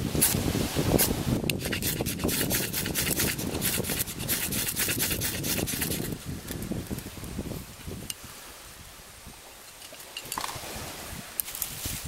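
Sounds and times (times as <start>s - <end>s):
knife scraping ferrocerium rod: 1.4s - 6.2s.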